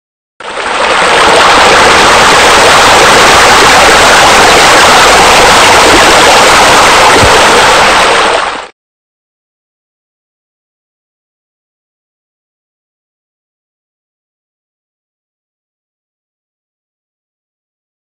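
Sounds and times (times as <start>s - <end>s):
water rushing: 0.4s - 8.7s.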